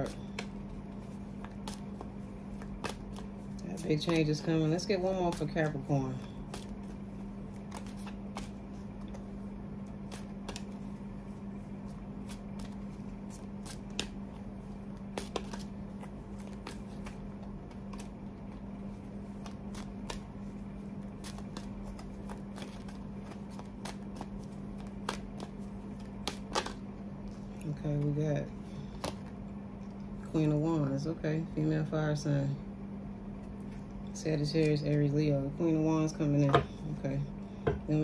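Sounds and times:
cards being shuffled: 0.0 - 30.3
steady low hum: 0.0 - 38.0.

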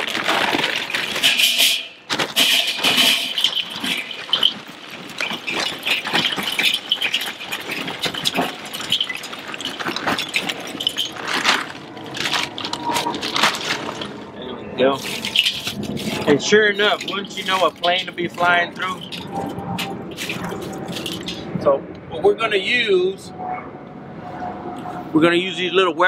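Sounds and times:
charcoal clattering into metal ring: 0.0 - 14.2, 15.0 - 21.5.

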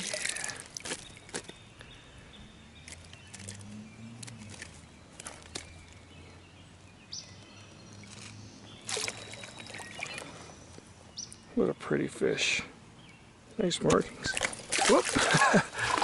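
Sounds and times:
water splashes and drips: 0.0 - 1.6, 2.8 - 5.9, 8.0 - 10.4, 13.8 - 16.0
loud splash: 14.3 - 16.0.

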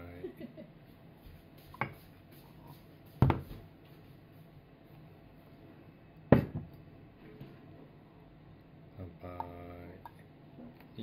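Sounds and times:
tableware knocking on a table: 3.2 - 3.6, 6.3 - 6.7.

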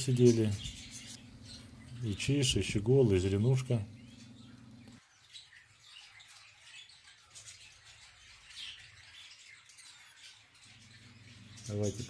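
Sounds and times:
low steady hum: 0.0 - 5.0
small birds chirping: 0.0 - 12.0.

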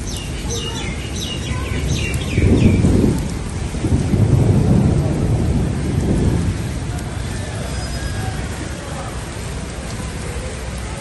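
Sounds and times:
bird chirping: 0.0 - 2.8
steady rain: 0.0 - 11.0
low rumbles of thunder: 0.4 - 9.9.

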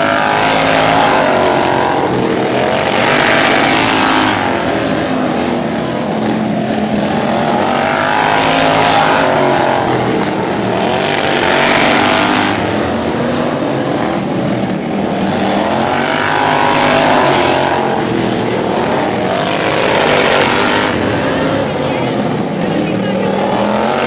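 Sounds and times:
racing lawn mower engines: 0.0 - 24.0.

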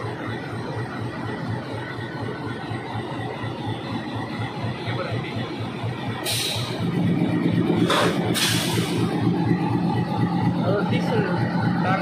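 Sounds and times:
diesel locomotive engine rumbling: 0.0 - 12.0
hissing air bursts: 6.2 - 6.8, 7.8 - 9.0.

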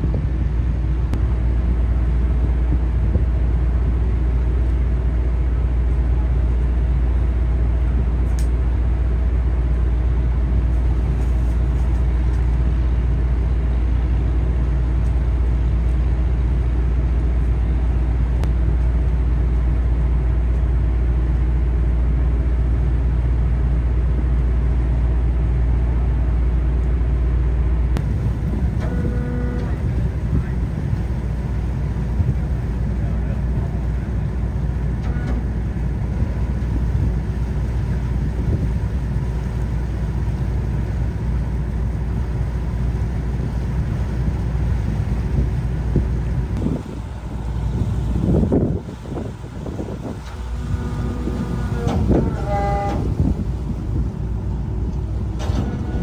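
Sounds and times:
motor low rumble: 0.0 - 56.0
short pitched tone: 28.8 - 29.9.

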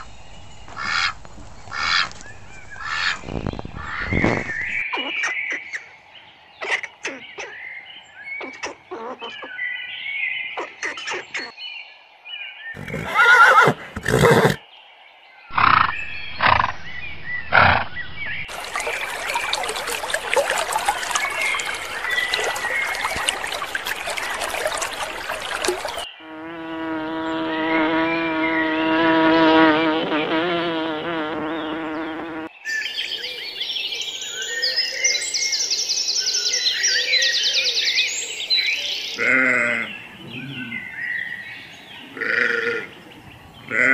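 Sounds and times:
loud animal calls: 15.5 - 16.7, 17.4 - 26.0
sharp animal calls: 15.5 - 18.0.

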